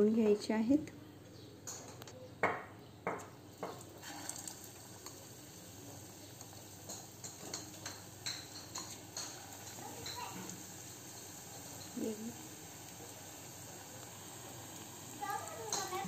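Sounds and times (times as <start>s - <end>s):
food frying in hot oil: 3.1s - 16.0s
kitchen utensils clattering: 6.8s - 10.5s, 15.6s - 16.0s.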